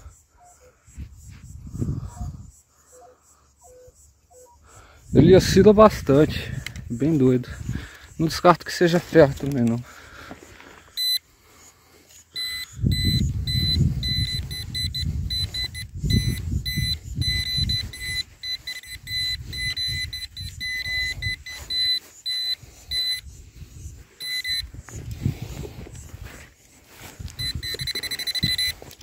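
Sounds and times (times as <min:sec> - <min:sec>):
loose earth rustling and scraping: 0:05.8 - 0:29.0
pinpointer short beeps: 0:11.0 - 0:11.3, 0:12.1 - 0:25.1, 0:27.2 - 0:29.0.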